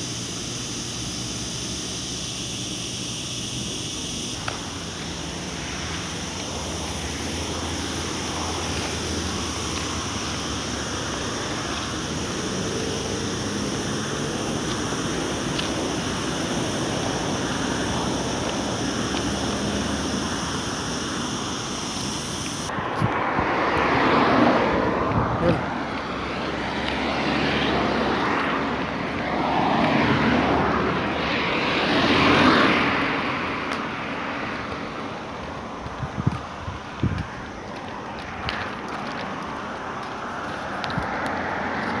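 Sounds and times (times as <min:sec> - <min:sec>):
street traffic rushing by: 0:00.0 - 0:42.0
wind buffeting microphone: 0:34.7 - 0:38.7.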